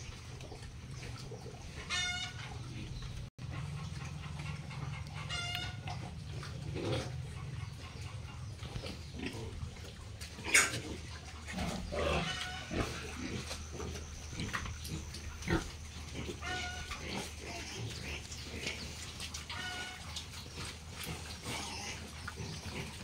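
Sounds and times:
pigs calling: 0.0s - 23.0s
pig squeals: 1.6s - 2.9s, 5.0s - 7.1s, 10.4s - 10.9s, 11.5s - 23.0s.

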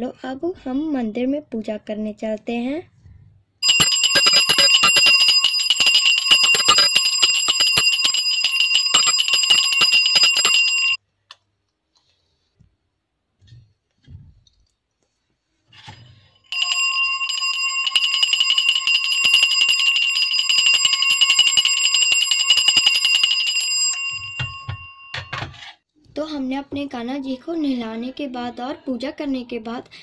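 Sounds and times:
hand bell rung rapidly: 3.6s - 11.0s, 16.5s - 25.1s.

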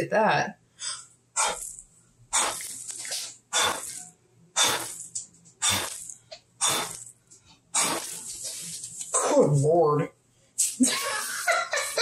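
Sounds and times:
person blowing puffs of air: 0.8s - 4.0s, 4.6s - 7.1s, 7.8s - 8.4s.

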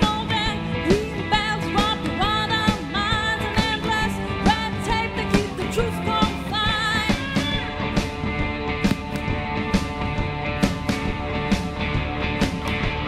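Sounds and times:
electric guitars: 0.0s - 13.0s
steady drum beat: 4.4s - 13.0s.

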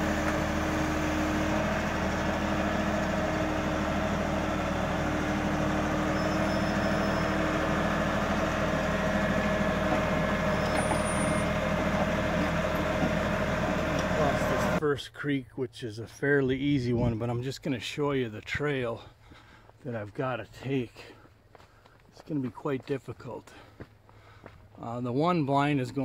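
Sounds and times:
tractor diesel engine running: 0.0s - 14.8s.

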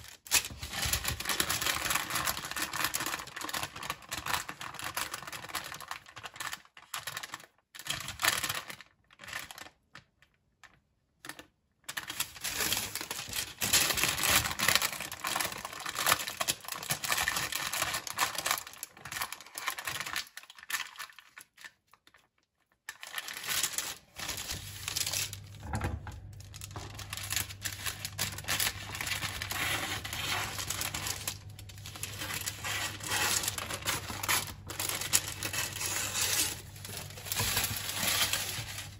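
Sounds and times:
parchment paper crinkling: 0.0s - 38.9s
low steady hum: 24.0s - 38.9s.

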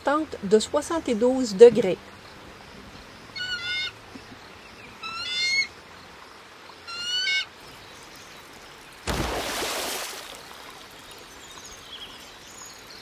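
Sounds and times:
bird calling: 3.0s - 5.8s, 6.8s - 8.0s.

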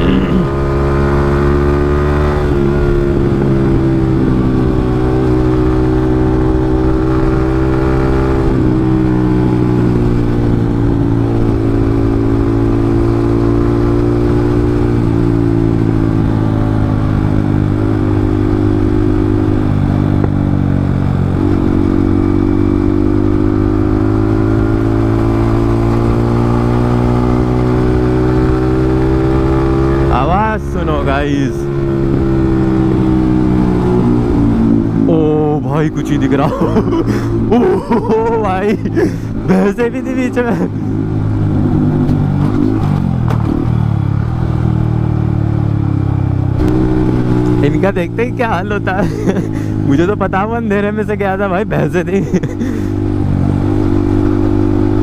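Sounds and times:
motorcycle engine with loud exhaust: 0.0s - 55.0s.

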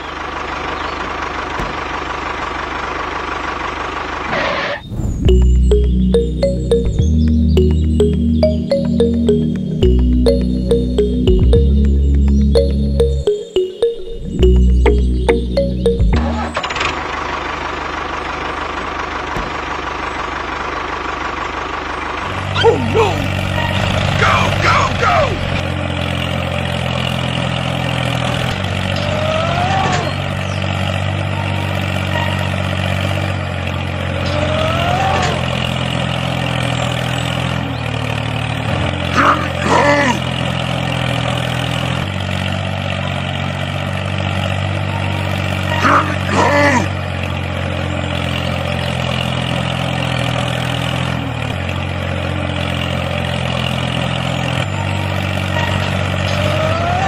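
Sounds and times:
engine idling drone: 0.0s - 57.0s
short high-pitched sounds: 5.3s - 16.7s.

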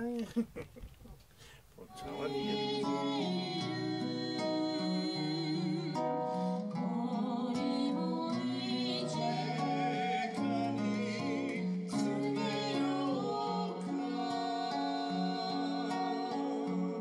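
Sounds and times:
person singing with vibrato: 1.8s - 17.0s
strummed acoustic guitar: 1.9s - 17.0s.

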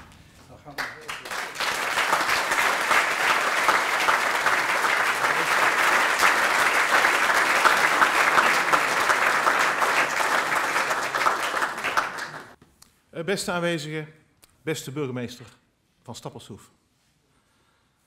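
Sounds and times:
audience applauding: 0.7s - 12.6s.

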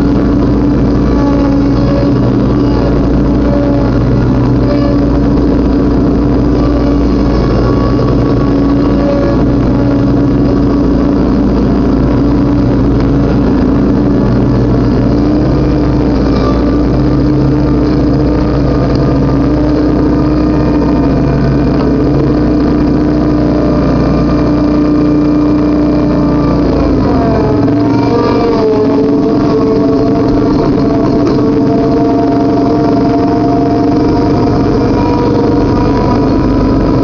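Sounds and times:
riding lawnmower engine: 0.0s - 37.0s.

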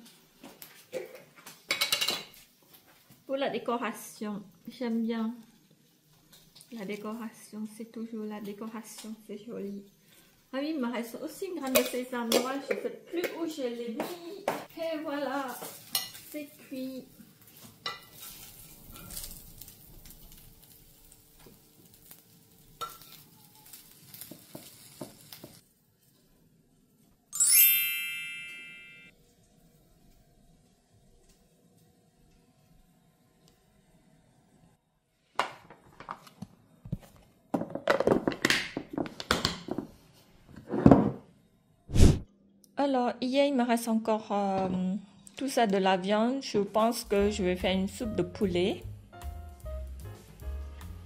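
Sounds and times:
dishes and utensils clattering: 0.9s - 2.4s
chicken sizzling in a pan: 14.8s - 26.3s.

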